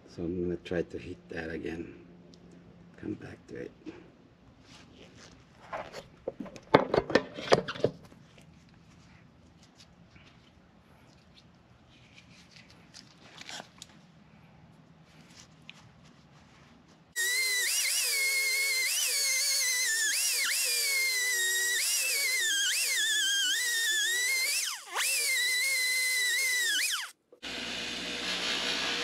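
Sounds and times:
bench buffer running: 17.2 - 29.0
die grinder whining: 17.2 - 29.0.

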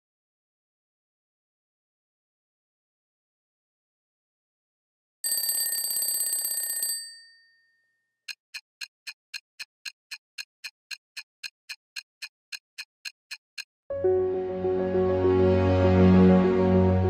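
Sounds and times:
alarm clock bell ringing: 5.2 - 7.7
clock ticking: 8.3 - 13.7.

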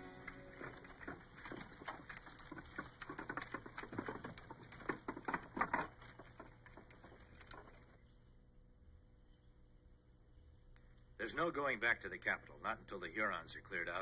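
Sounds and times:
wooden wagon rattling: 0.0 - 8.1
horse hooves clopping: 0.0 - 8.2.

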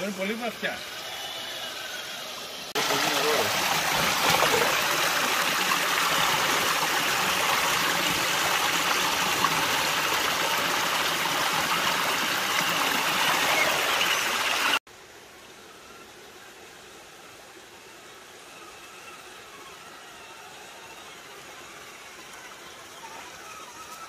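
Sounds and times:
creek water rushing over rocks: 0.0 - 15.2.

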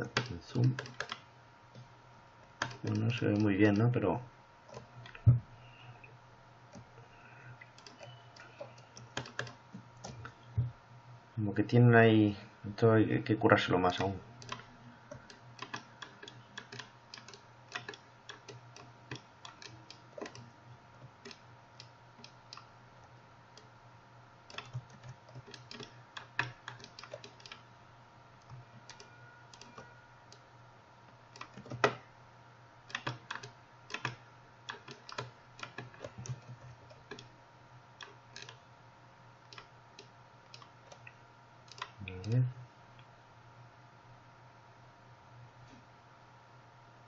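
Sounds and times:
keyboard and mouse clicking: 0.0 - 1.9, 2.6 - 3.8, 7.7 - 10.4, 13.9 - 22.7, 24.5 - 27.6, 28.4 - 30.4, 31.3 - 32.0, 32.9 - 37.3, 38.0 - 38.6, 39.5 - 42.4
low steady hum: 0.0 - 47.0.

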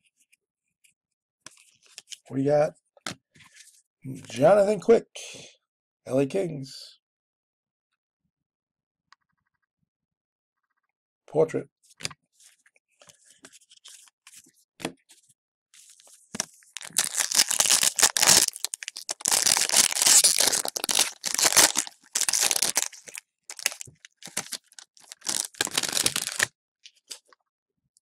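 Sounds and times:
cards being handled: 15.9 - 26.5
card pack wrapper tearing and crinkling: 16.4 - 26.5.

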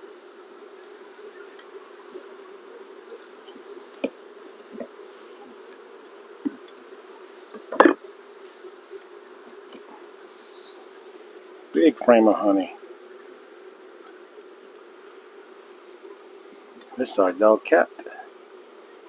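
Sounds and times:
honey bees humming: 0.0 - 19.0
hive tool knocking on wooden frames: 1.4 - 5.0, 5.6 - 8.3.

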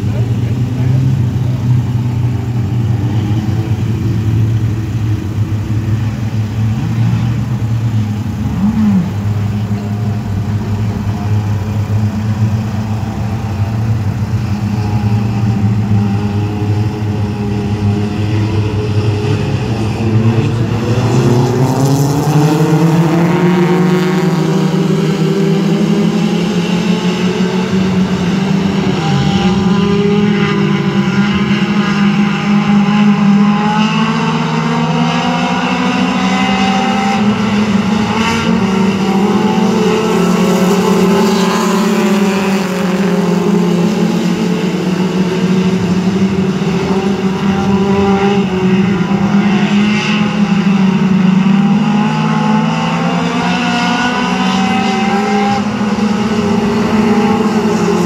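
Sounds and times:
race car engines passing: 0.0 - 58.0.

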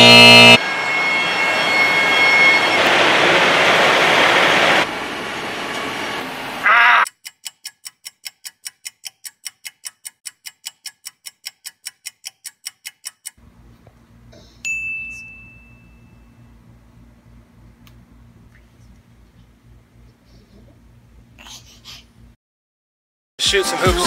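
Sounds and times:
clock ticking: 7.1 - 13.4
bright ding: 14.6 - 16.5.

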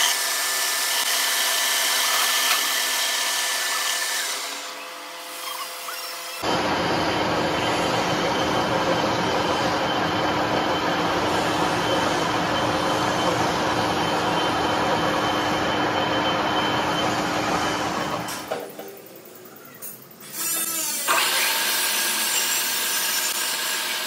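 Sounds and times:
metal lathe whirring: 0.0 - 18.3.

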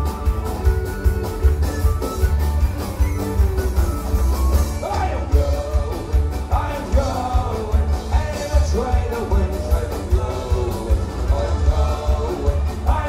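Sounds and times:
acoustic guitar: 0.0 - 13.0
steady drum beat: 0.0 - 13.0
person singing: 4.7 - 13.0.

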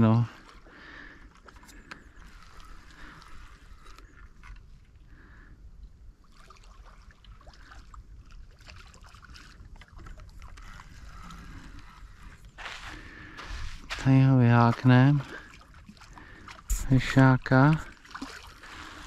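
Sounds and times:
water splashing and sloshing: 0.0 - 19.0.

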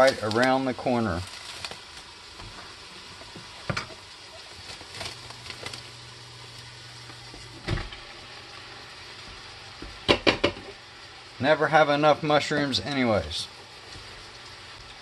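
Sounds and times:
plastic wrap crinkling: 0.0 - 2.8, 4.2 - 7.5
thump: 7.6 - 7.9.

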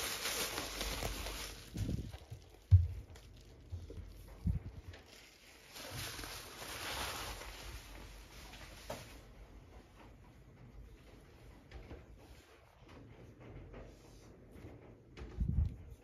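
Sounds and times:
paper rustle: 0.0 - 9.2.

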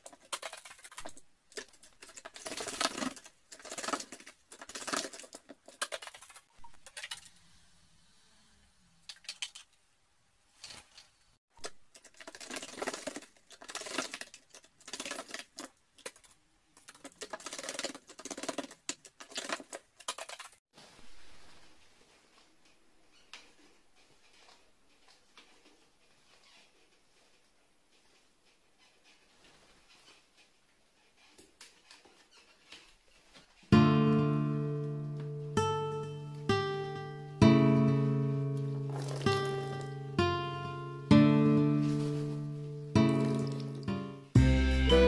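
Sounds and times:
bird splashing in water: 38.9 - 39.8, 43.1 - 43.8.

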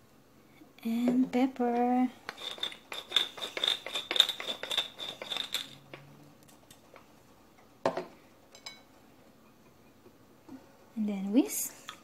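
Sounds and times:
pepper mill grinding: 2.2 - 6.0.

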